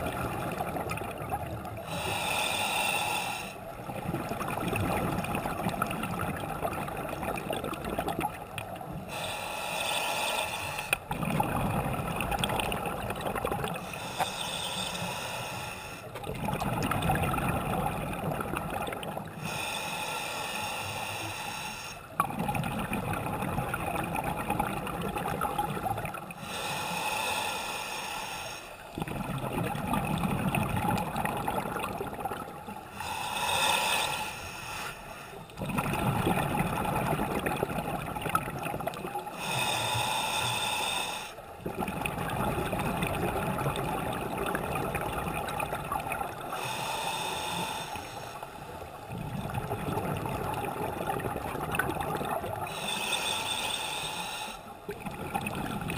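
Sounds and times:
hissing regulator inhale: 1.8 - 3.6, 9.0 - 11.0, 13.8 - 16.2, 19.4 - 22.1, 26.4 - 28.8, 32.9 - 35.6, 39.3 - 41.5, 46.5 - 48.8, 52.7 - 54.8
bubbling exhale: 9.0 - 55.9.

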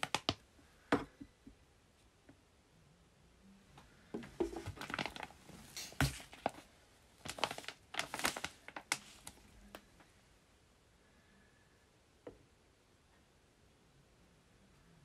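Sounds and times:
plastic pouches crinkling: 0.0 - 0.4, 4.2 - 9.8
pouch thumping on wooden shelf: 5.8 - 6.6.

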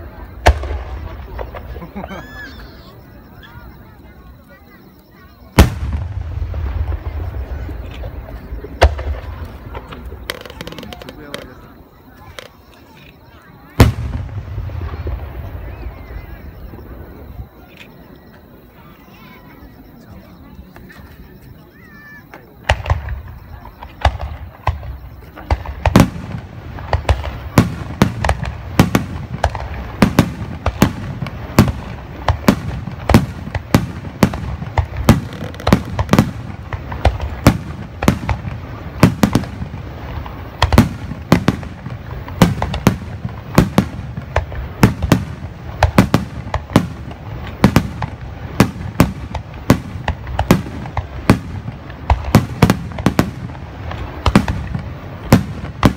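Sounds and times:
firework shells bursting: 5.6 - 12.6, 22.5 - 55.9.

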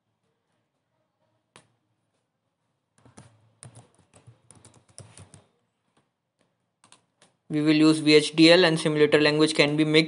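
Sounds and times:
faint keyboard typing: 2.9 - 7.5.

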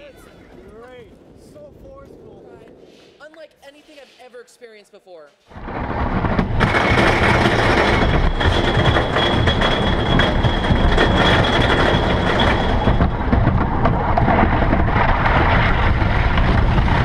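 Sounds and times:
machinery rattling and rumbling: 5.5 - 17.0.

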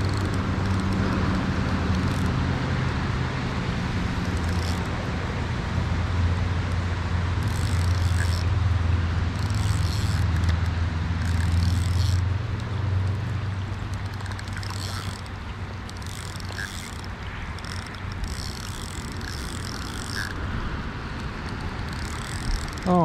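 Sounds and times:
low steady rumble: 0.0 - 23.0.

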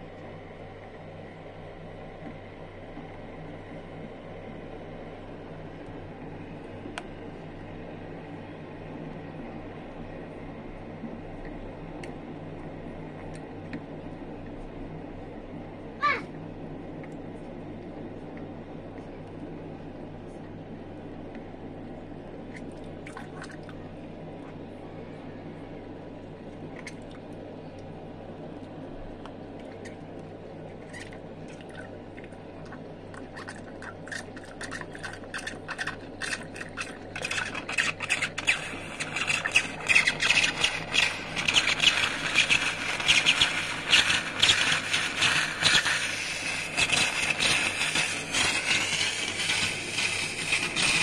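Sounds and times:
faint hum: 0.0 - 51.0
steam wand crackling hiss: 37.2 - 51.0.

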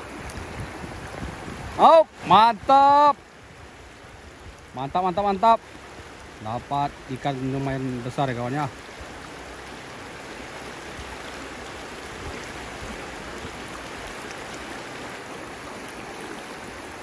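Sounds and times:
river rushing over rocks: 0.0 - 17.0.

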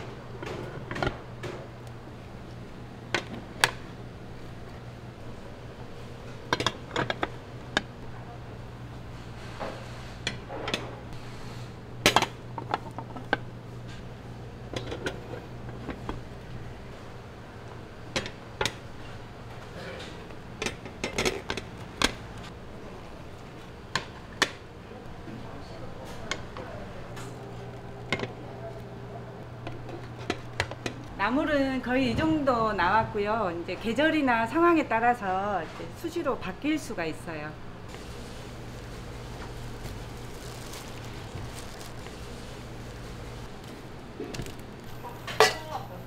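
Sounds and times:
dishes and pans clinking: 45.3 - 45.8.

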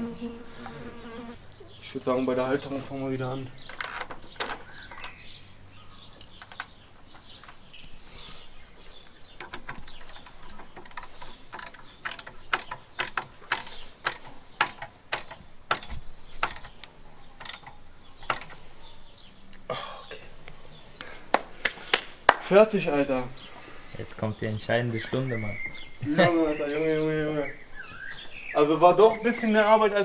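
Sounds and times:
ratchet wrench clicking: 10.2 - 16.7.

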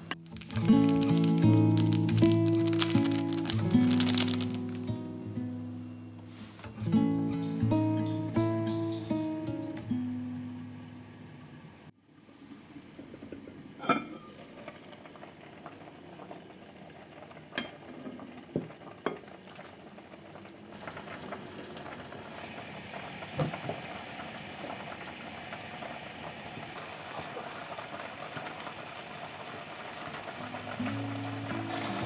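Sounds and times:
pork bubbling in a clay pot: 0.0 - 4.9, 12.1 - 32.0.

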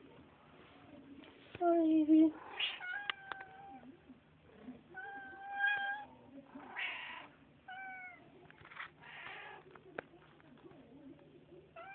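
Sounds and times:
cat meowing: 2.5 - 3.9, 5.0 - 6.1, 6.7 - 8.2.

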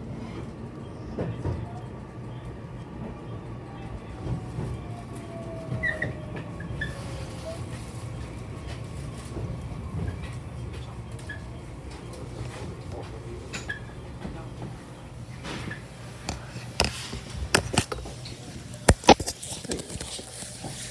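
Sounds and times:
electric train humming: 0.0 - 19.0
phone handling clicks and knocks: 16.3 - 18.1.

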